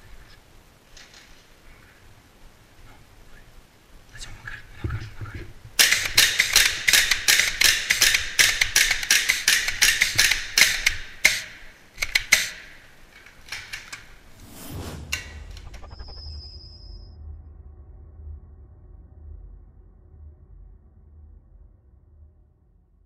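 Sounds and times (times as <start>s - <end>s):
airsoft gun rapid cracks: 5.8s - 14.2s.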